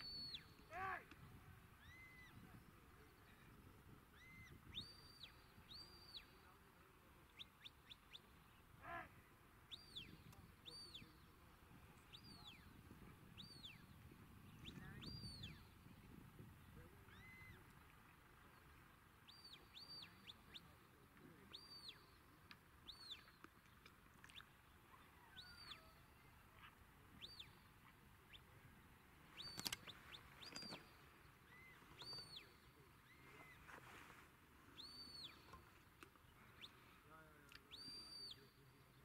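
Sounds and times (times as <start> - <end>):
sharp click: 29.4 - 30.8.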